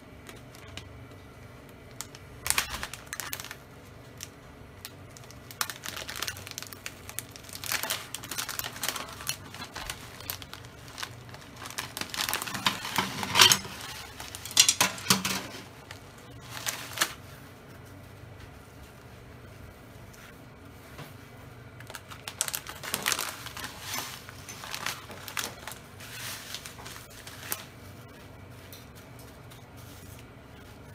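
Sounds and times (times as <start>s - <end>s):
plastic bag crinkling: 1.7s - 17.3s, 21.8s - 27.9s.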